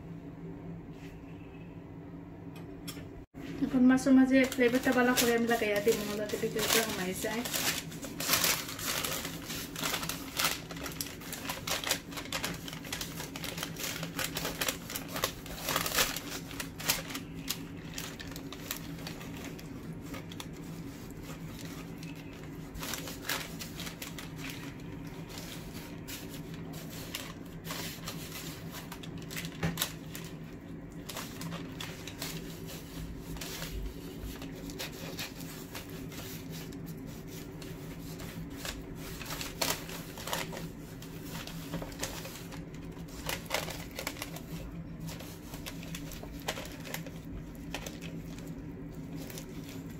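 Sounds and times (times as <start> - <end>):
low steady hum: 0.0 - 49.9
baking paper crinkling: 3.4 - 49.9.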